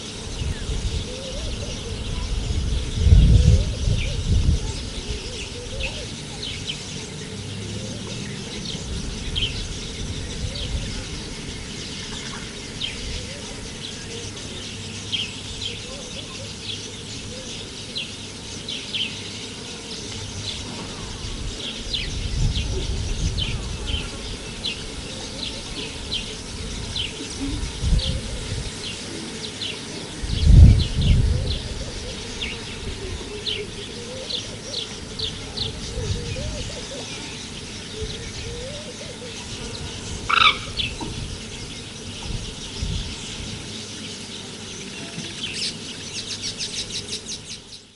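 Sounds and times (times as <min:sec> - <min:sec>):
small birds chirping: 0:00.0 - 0:47.9.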